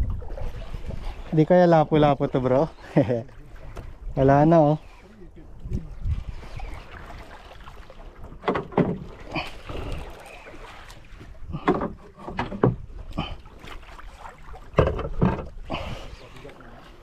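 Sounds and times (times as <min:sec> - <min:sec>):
water slapping against boat hull: 0:03.2 - 0:04.6, 0:05.5 - 0:17.0.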